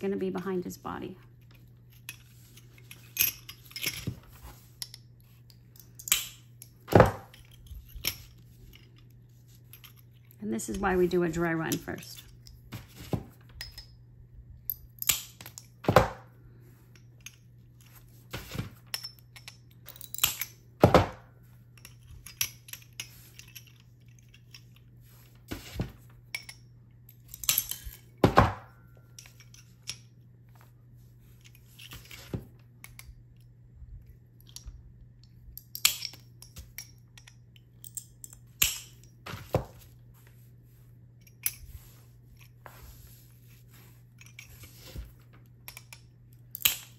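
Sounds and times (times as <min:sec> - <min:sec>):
faint steady hum: 0:00.0 - 0:46.9.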